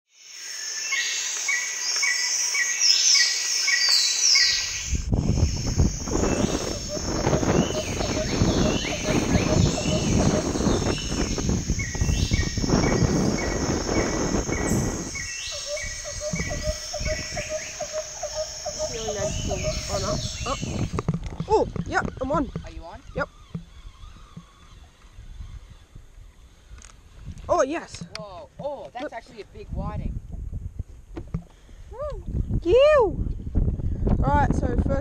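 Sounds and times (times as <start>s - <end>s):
insects chirping: 0.1s - 27.9s
birds calling: 0.4s - 27.2s
wind rumbling on microphone: 4.3s - 35.0s.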